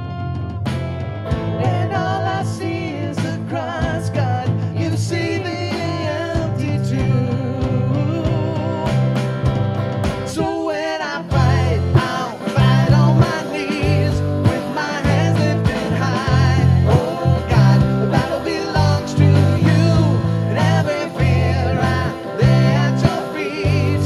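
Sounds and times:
drum hits: 0:00.0 - 0:04.9, 0:11.3 - 0:24.0
bass notes: 0:00.0 - 0:10.5, 0:11.3 - 0:24.0
guitar: 0:00.0 - 0:24.0.

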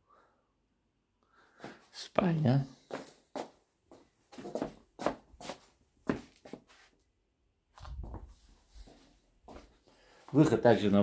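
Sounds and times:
footsteps on laminate floor: 0:02.8 - 0:06.7.

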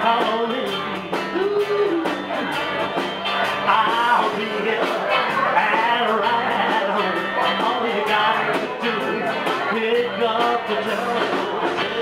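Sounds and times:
man singing into a microphone: 0:00.0 - 0:02.5, 0:03.6 - 0:12.0
bass guitar: 0:00.0 - 0:12.0
drums keeping a steady beat: 0:00.0 - 0:12.0
electric guitars: 0:00.0 - 0:12.0.

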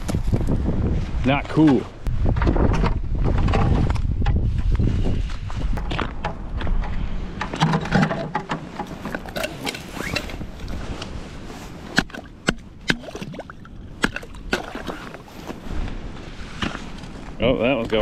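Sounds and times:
gloves and clothing rustling: 0:08.8 - 0:12.0, 0:14.9 - 0:18.0.

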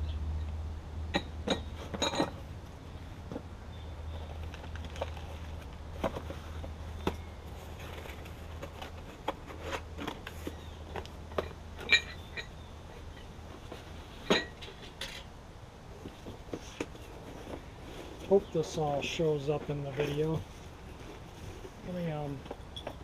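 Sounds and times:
clinks and knocks of parts handled: 0:01.1 - 0:02.5, 0:04.2 - 0:15.3, 0:21.9 - 0:23.0.

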